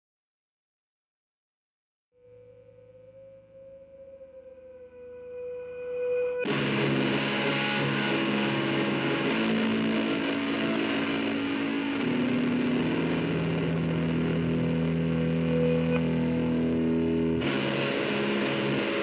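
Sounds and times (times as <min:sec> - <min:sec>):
held tone: 0:02.2 - 0:06.5
distorted guitar chords: 0:02.2 - 0:19.0.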